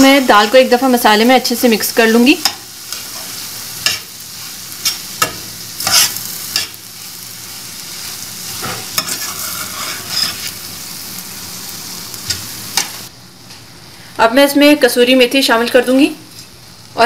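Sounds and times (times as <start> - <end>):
frying sizzle: 0.0 - 17.0
metal spatula scraping a pan: 4.8 - 6.8, 8.5 - 10.6.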